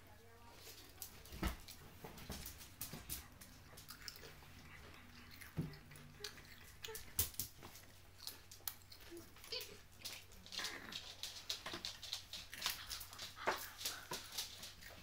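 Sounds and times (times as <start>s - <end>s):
puppies play-fighting: 0.6s - 15.0s
puppy growling: 3.2s - 15.0s.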